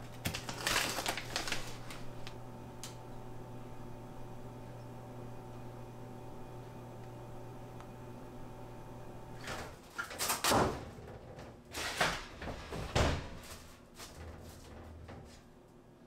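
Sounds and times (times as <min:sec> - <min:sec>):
steady low hum: 0:00.0 - 0:09.9
drawer sliding open and shut: 0:11.7 - 0:15.0.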